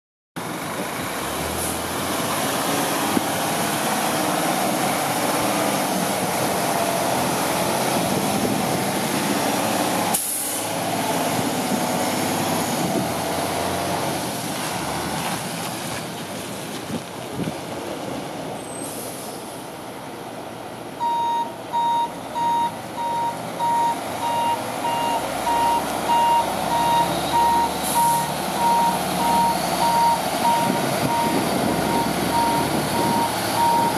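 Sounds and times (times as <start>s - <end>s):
air brake hiss: 10.1s - 10.7s, 18.8s - 19.5s, 27.8s - 28.3s
reverse alarm beeping: 21.0s - 33.9s
truck diesel engine running: 22.3s - 33.9s.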